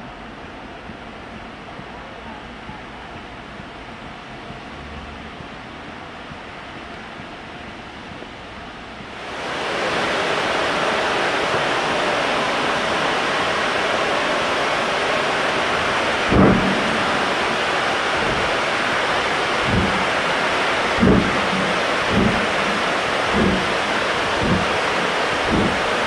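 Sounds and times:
steam locomotive roar: 9.1 - 26.0
wind thumps on microphone: 16.2 - 26.0.

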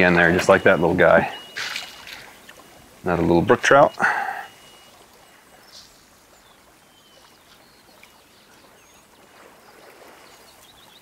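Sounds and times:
faint stream water: 0.0 - 11.0
high bird chirps: 0.2 - 2.8, 3.7 - 6.0.

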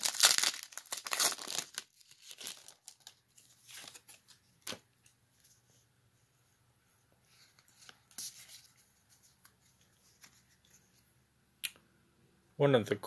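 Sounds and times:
foil wrapper crinkling and tearing: 0.0 - 4.1.

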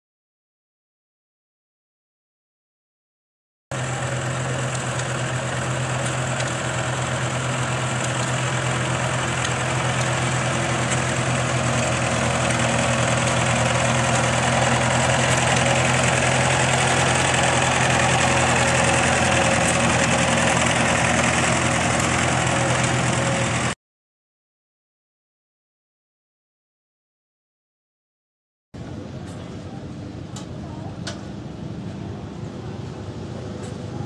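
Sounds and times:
tractor engine running: 3.7 - 23.8.

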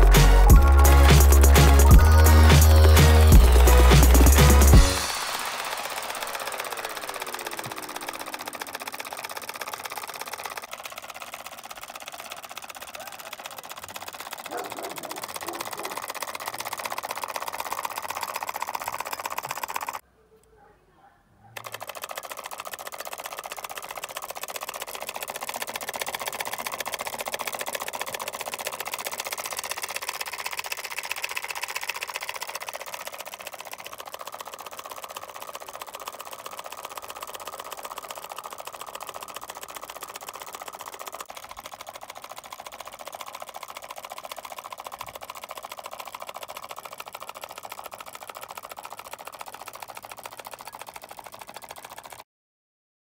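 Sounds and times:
solenoid engine clattering: 0.0 - 20.0, 21.6 - 52.2.

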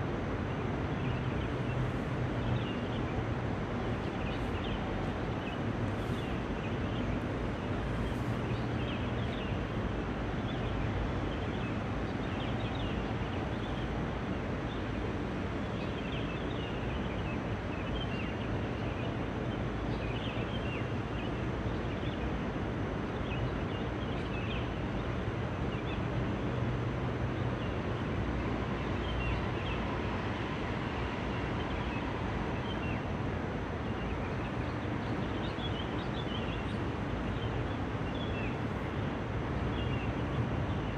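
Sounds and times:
traffic rumble: 0.0 - 17.7.

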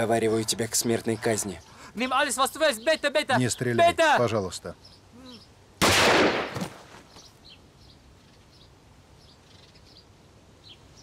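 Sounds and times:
faint birds chirping: 0.0 - 5.8, 6.7 - 11.0
gunfire: 5.8 - 6.8.

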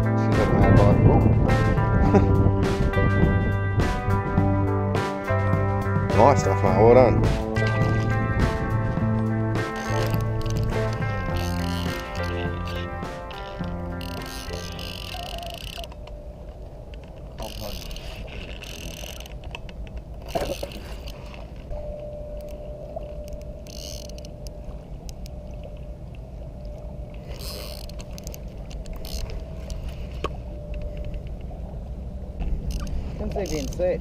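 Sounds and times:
wind rumble on microphone: 0.0 - 34.0
fishing reel whirring and clicking: 9.7 - 16.2, 17.4 - 19.6, 22.4 - 25.4, 27.2 - 29.8, 32.6 - 34.0.

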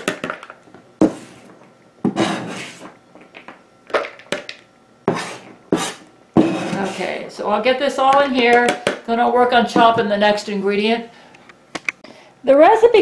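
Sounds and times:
knife scraping cutting board: 1.0 - 1.5, 2.1 - 3.0, 5.1 - 7.3.

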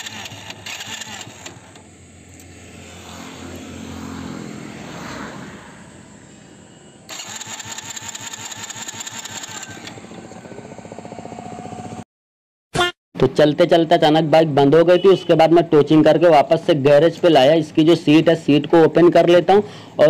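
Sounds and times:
electric starter cranking engine: 0.0 - 3.1, 7.1 - 12.0.

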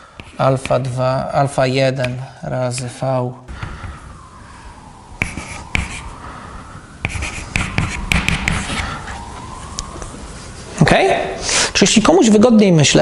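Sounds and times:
chalk tapping and scratching on blackboard: 0.2 - 1.0, 5.2 - 6.0, 7.0 - 8.8.

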